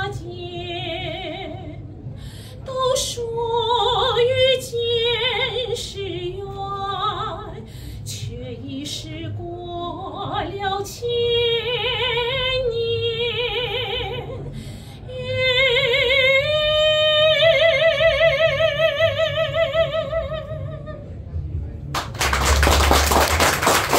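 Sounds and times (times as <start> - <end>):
woman singing operatic soprano: 0.0 - 1.8, 2.6 - 21.0
singer breath: 2.0 - 2.7, 7.6 - 8.1, 14.5 - 15.1.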